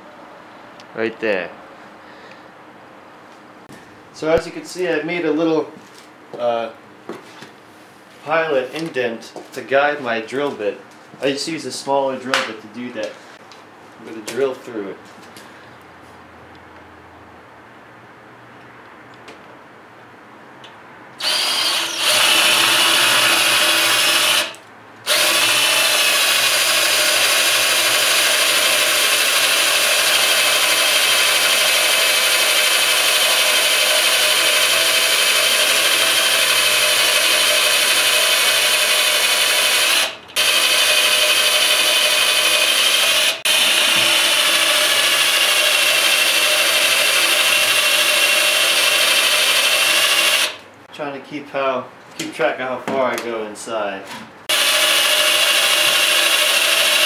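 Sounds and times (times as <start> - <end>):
electric drill whining: 21.2 - 50.6, 54.5 - 57.0.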